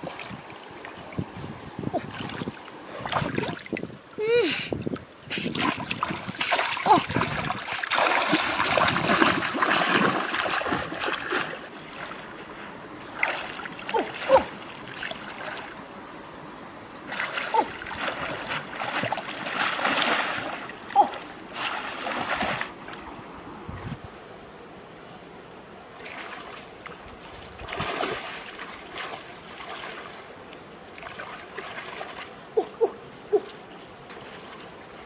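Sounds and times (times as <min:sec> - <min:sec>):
water splashing from swimming: 0:01.9 - 0:04.6, 0:05.3 - 0:15.8, 0:17.1 - 0:23.0, 0:26.0 - 0:35.0
sharp water slaps: 0:05.3 - 0:11.6, 0:17.1 - 0:22.8, 0:26.1 - 0:30.1.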